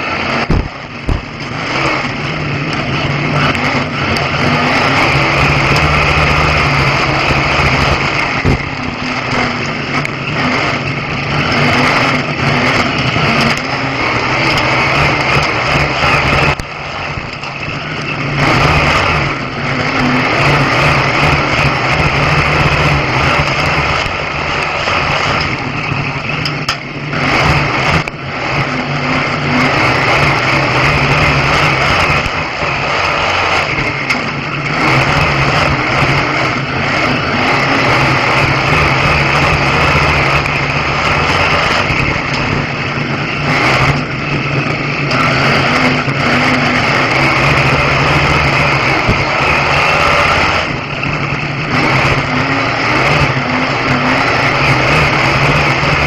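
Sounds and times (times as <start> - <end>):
race car engine running hard: 0.0 - 56.0.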